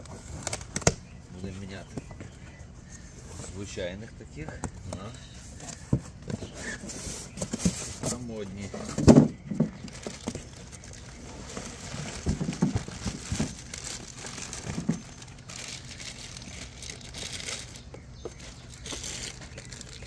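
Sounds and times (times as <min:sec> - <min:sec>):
plastic wrapping crinkling: 0:09.8 - 0:20.0.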